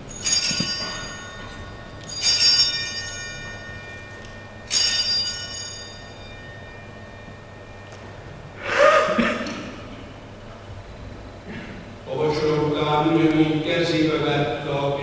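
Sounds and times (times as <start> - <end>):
altar bells ringing: 0.0 - 9.2.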